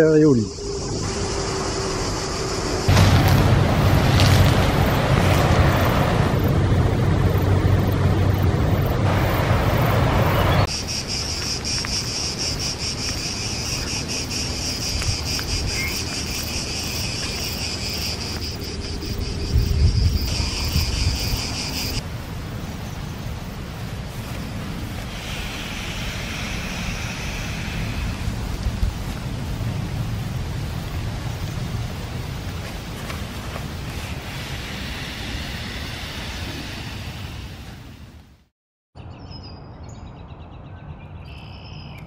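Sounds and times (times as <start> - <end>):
cicadas chirring: 0.0 - 6.6, 7.2 - 37.8
low rumble with hum: 0.6 - 10.7.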